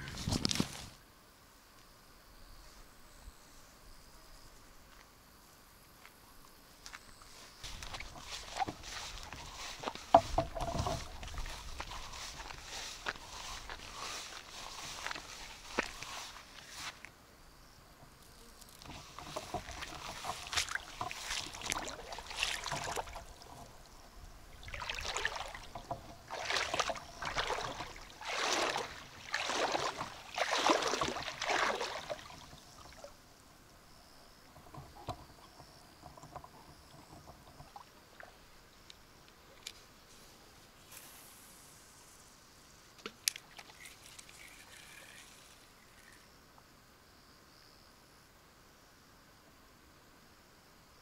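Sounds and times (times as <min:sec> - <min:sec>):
water swishing and splashing: 0:07.4 - 0:17.0, 0:18.8 - 0:38.8, 0:43.3 - 0:46.2
faint ticks: 0:34.4 - 0:39.9.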